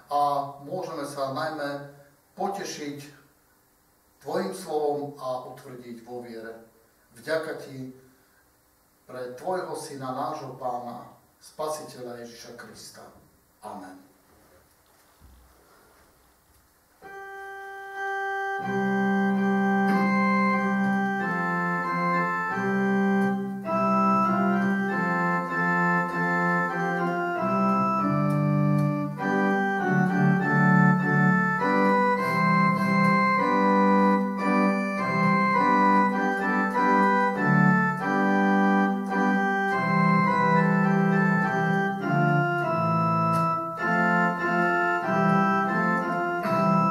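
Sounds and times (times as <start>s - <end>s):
electronic keyboard organ chords: 17.0s - 46.9s.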